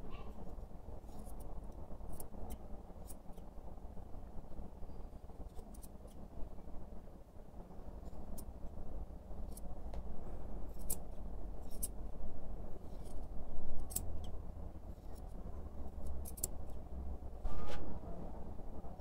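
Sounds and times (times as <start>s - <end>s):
scissors snipping through fur: 1.1s - 3.5s, 5.5s - 6.2s, 9.4s - 10.1s, 10.7s - 12.0s, 12.8s - 14.4s, 15.0s - 16.8s.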